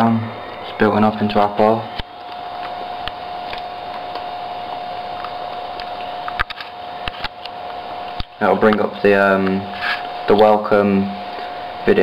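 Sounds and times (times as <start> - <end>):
laptop whine and hiss: 0.0 - 12.0.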